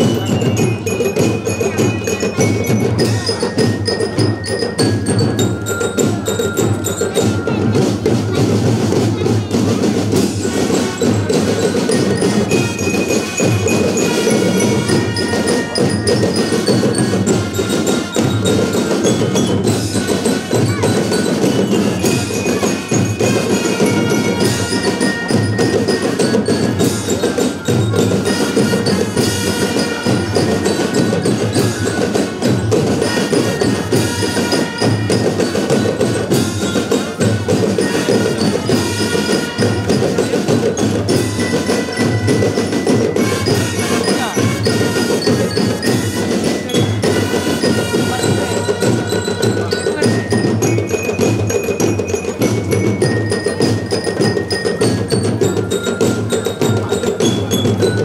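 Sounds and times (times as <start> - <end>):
marching glockenspiels ringing: 0.0 - 58.0
snare and bass drums: 0.0 - 58.0
brass playing: 12.6 - 15.8, 28.2 - 30.8, 33.0 - 35.2, 37.9 - 39.9, 43.2 - 45.4, 47.0 - 48.6.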